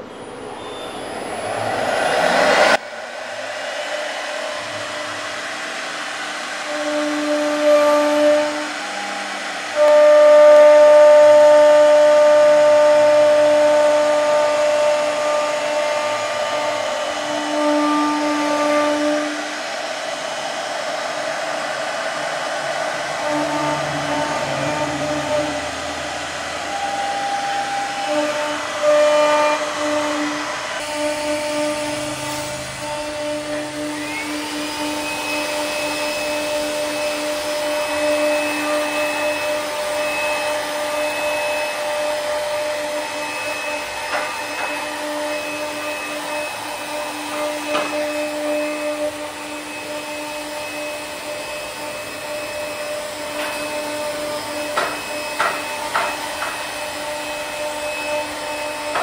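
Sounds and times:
router bit cutting wood: 0.0 - 59.0
router spindle motor whining: 0.0 - 59.0.

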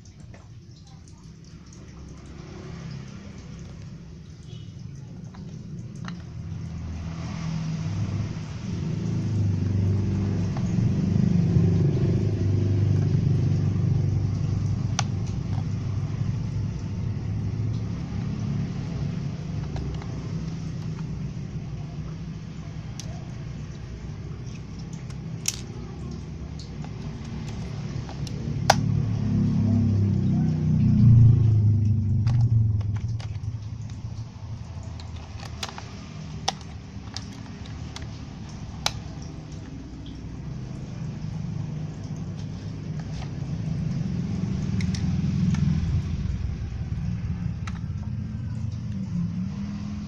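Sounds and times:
light plastic clicks: 34.8 - 40.2.

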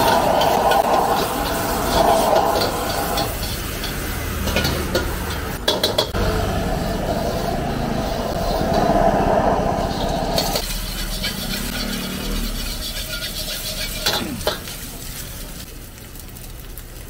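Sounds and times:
ladle scraping a wok: 0.0 - 6.2, 9.8 - 15.7
gas burner roar: 0.0 - 17.0.

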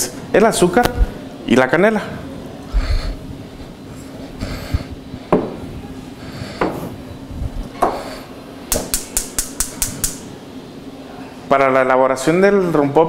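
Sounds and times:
sharp clicks: 8.9 - 10.2.

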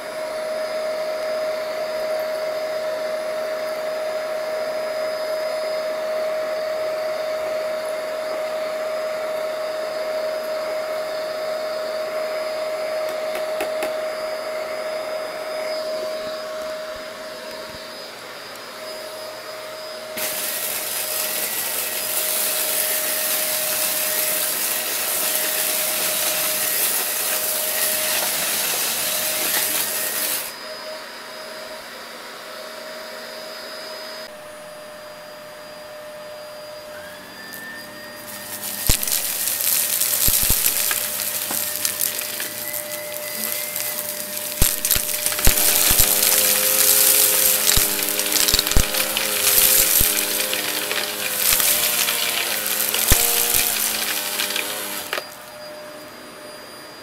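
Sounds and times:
vacuum cleaner motor whine: 0.0 - 57.0
loud rushing hiss: 20.2 - 30.5, 38.2 - 55.5.

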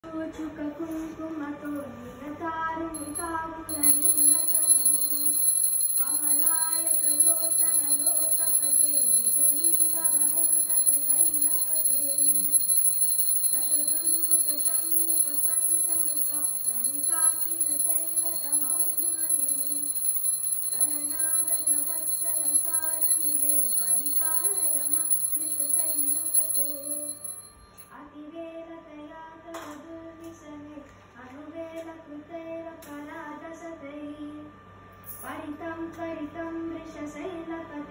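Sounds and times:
small hand bell ringing: 3.0 - 27.9.

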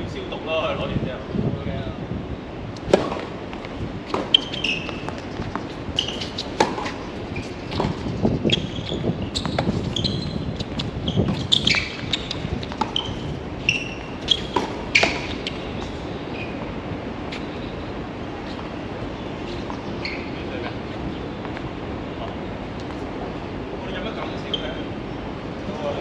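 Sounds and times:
tennis balls struck by rackets: 2.8 - 8.7, 10.6 - 16.6
shoe squeaks on court: 4.1 - 16.6, 19.4 - 20.5, 24.4 - 24.8.

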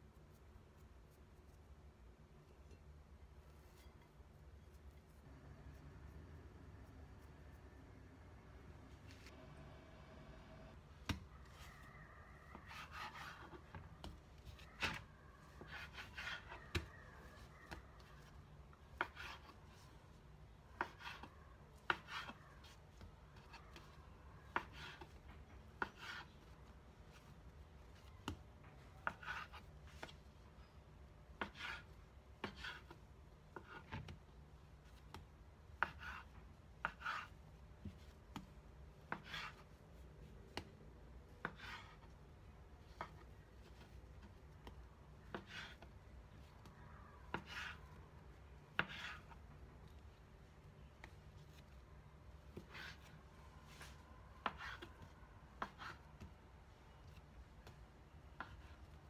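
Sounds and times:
hands rubbing dough: 11.1 - 30.6, 31.3 - 59.0.

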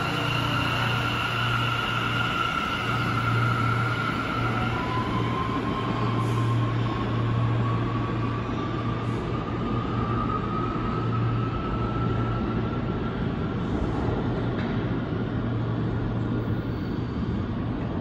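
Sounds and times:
rising whine: 0.0 - 13.6
subway train running: 0.0 - 18.0.

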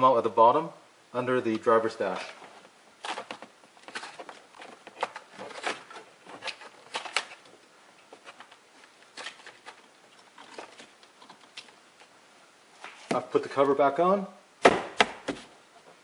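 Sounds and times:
plastic trim clicks and rustles: 3.0 - 7.5.

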